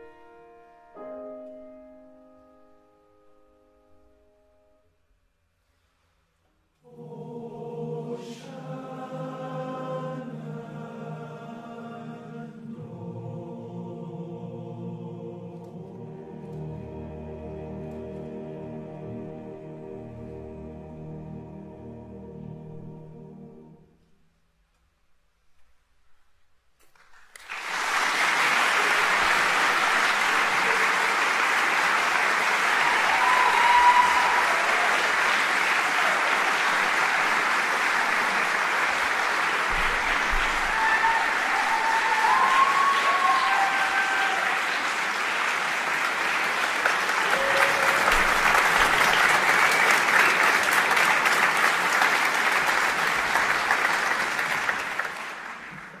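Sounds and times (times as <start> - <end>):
audience applauding: 26.9 - 56.0.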